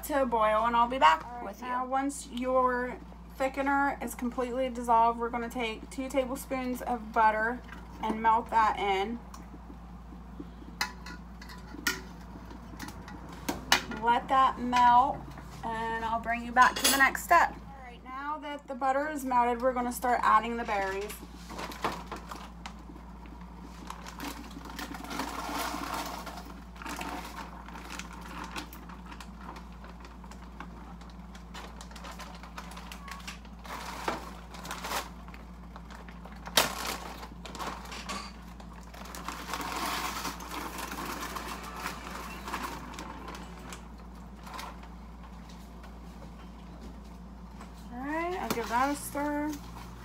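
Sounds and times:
plastic bag crinkling: 20.8 - 45.0.

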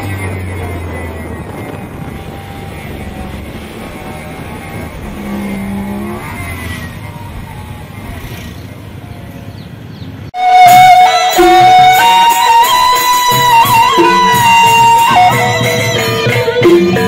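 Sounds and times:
motorcycle engines running: 0.0 - 10.4
passing motorbike engine: 0.0 - 10.6
road and wind noise: 0.0 - 17.0
loud traditional drum music: 10.4 - 17.0.

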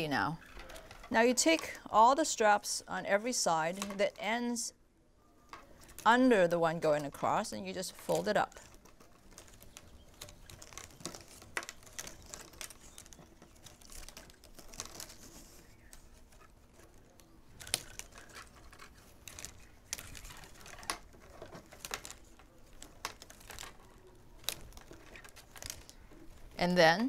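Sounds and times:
plastic straps crinkling: 5.6 - 27.0
straps clicking and snapping: 6.9 - 26.6.

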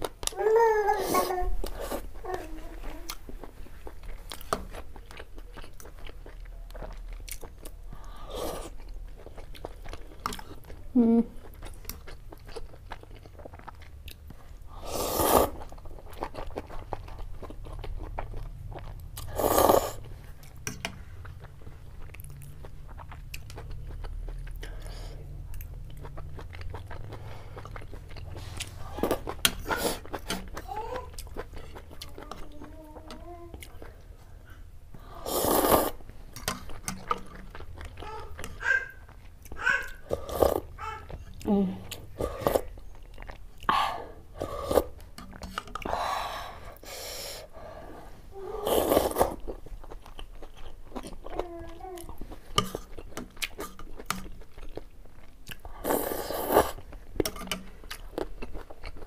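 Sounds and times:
close-miked chewing: 1.1 - 14.7, 15.4 - 34.7, 35.4 - 46.0, 48.6 - 59.0
slurping broth from a spoon: 14.8 - 15.7, 19.2 - 20.1, 35.2 - 37.2, 44.4 - 45.9, 48.6 - 49.5, 55.8 - 56.9
slurping noodles: 14.8 - 15.7, 19.2 - 20.0, 35.2 - 36.0, 40.0 - 40.7, 48.5 - 49.4, 55.8 - 56.9
noodles slurped: 35.2 - 36.1, 48.6 - 49.6, 55.5 - 57.0.

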